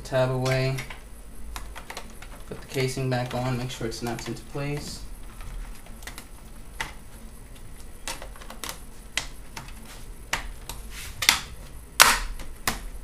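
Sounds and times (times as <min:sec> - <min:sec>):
plastic cover snapping into place: 0:11.2 - 0:12.9.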